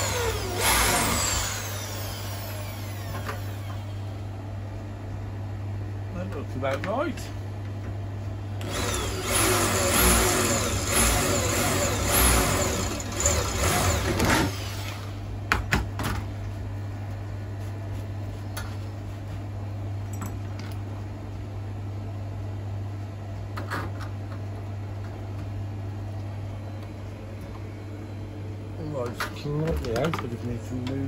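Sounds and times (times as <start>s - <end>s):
electric drill whining: 0.0s - 4.0s, 8.6s - 15.2s
steady low hum: 0.0s - 31.0s.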